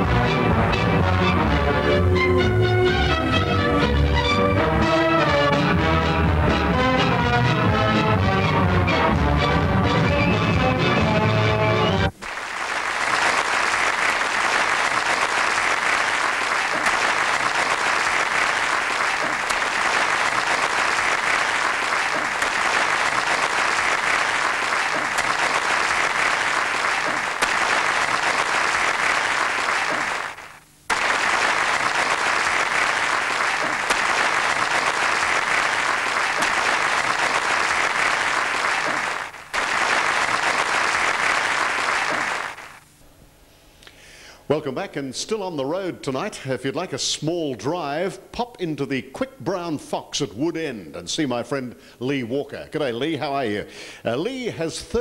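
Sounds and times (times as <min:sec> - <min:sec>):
large audience applauding: 0:12.1 - 0:42.9.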